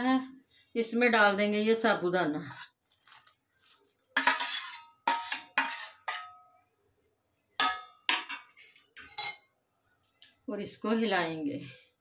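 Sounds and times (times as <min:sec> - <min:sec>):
spoon scraping a steel plate: 0:04.2 - 0:06.4.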